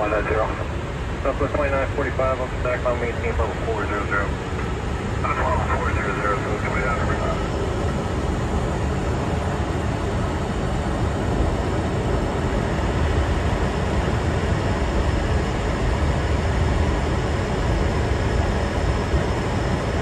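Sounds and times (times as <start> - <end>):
airflow and engine noise: 0.0 - 20.0.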